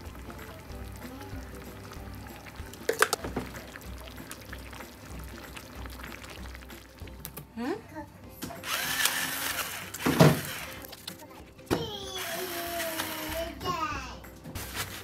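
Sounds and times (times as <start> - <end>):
liquid pouring: 0.0 - 7.4
soft background music: 0.0 - 15.0.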